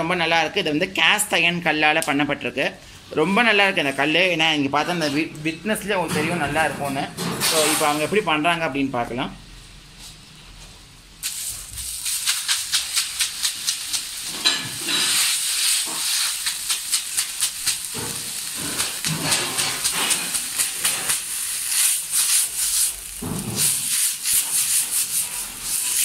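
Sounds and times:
water sizzling on hot griddle: 11.2s - 26.0s
broom scratching across griddle: 12.0s - 26.0s.

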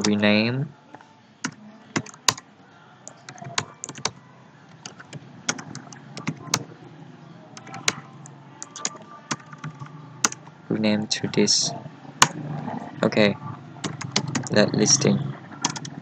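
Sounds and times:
keyboard typing clicks: 1.5s - 2.4s, 3.1s - 6.7s, 7.6s - 8.0s, 8.6s - 10.4s, 13.8s - 14.6s, 15.6s - 16.0s.

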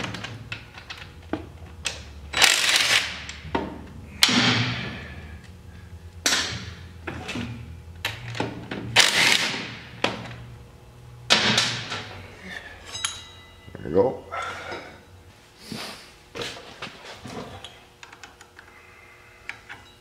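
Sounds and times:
metal tools clanking and scraping: 11.9s - 13.8s.

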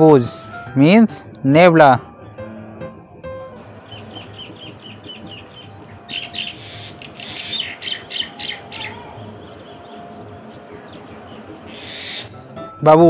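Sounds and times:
high-pitched insect drone: 0.1s - 13.0s
birds chirping: 1.6s - 13.0s
birds squawking harshly: 3.6s - 12.4s.

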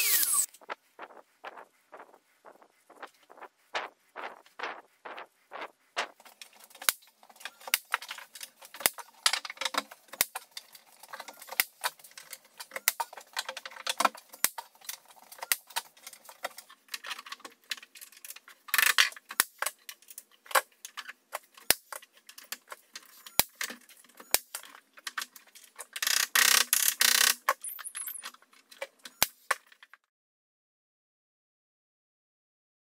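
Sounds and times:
tools and timber clicking and knocking: 0.0s - 30.1s.

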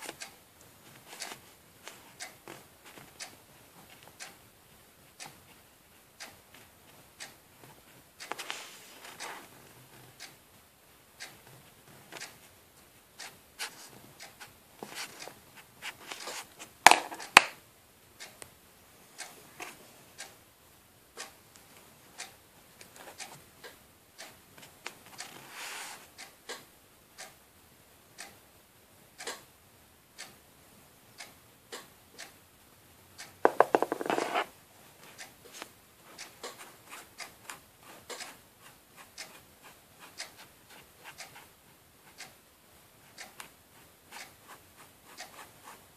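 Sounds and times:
objects handled on a tabletop: 14.8s - 17.5s, 33.4s - 34.6s.

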